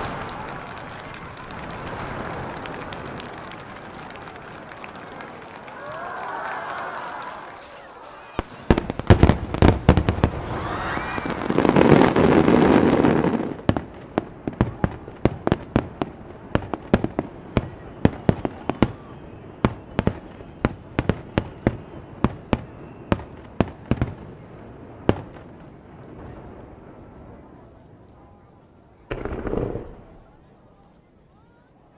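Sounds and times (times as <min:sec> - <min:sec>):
firework shells bursting: 0:00.0 - 0:06.0, 0:29.1 - 0:30.4.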